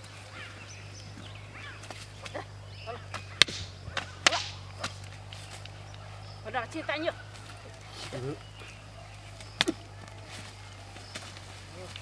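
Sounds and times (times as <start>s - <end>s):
stick smacking: 3.1s - 5.2s.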